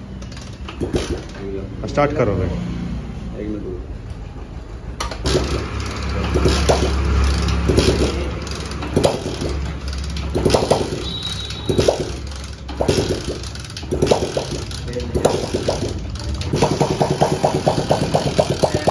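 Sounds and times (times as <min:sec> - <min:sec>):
motorcycle engine idling: 0:03.9 - 0:18.9.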